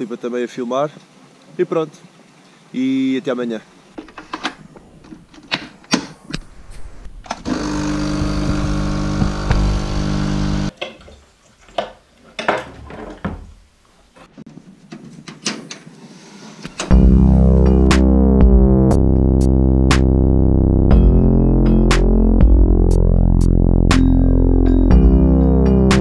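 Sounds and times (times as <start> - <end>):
coffee machine pump humming: 7.5 - 10.7.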